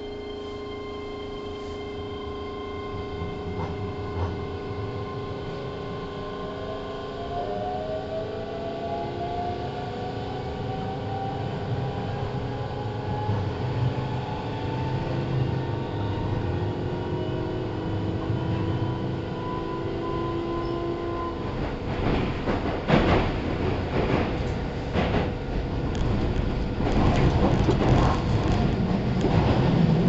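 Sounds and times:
train wheels rumbling: 16.3s - 30.0s.

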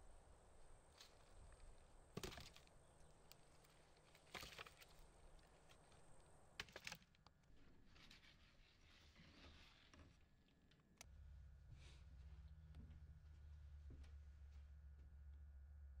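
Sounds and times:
logs knocking on woodpile: 2.2s - 2.7s.

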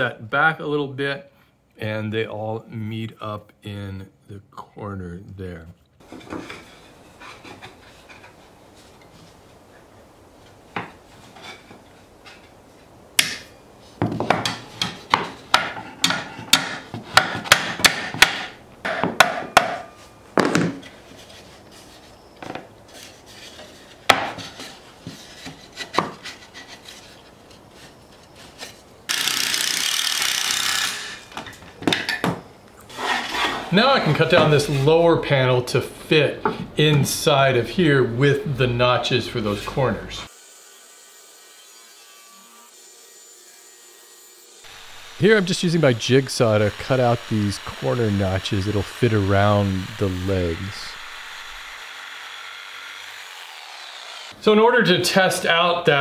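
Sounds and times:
hammer knocking wood: 14.0s - 19.8s.

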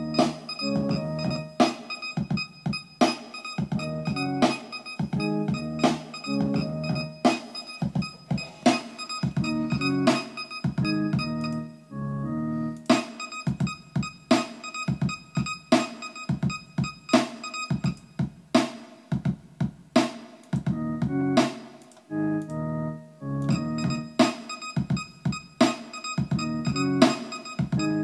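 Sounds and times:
sharp percussive hits: 0.0s - 11.6s, 12.9s - 18.8s, 23.5s - 28.0s
electronic keyboard chord stabs: 0.0s - 18.0s, 20.6s - 28.0s.

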